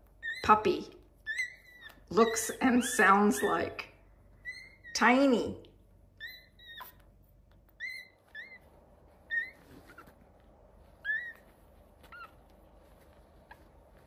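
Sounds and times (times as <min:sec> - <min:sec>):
puppies squeaking: 0:00.0 - 0:05.4, 0:06.0 - 0:14.0.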